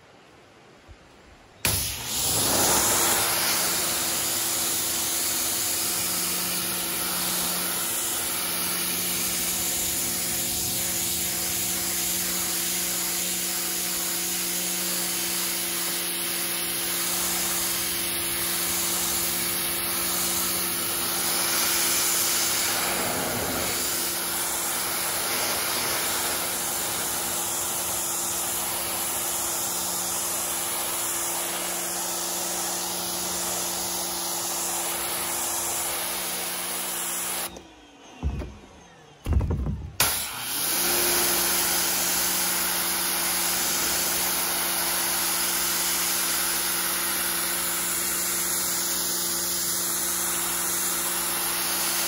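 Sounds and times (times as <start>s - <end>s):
pressure washer pump humming: 1.6s - 37.6s, 40.0s - 52.0s
water jet hissing: 1.7s - 37.5s.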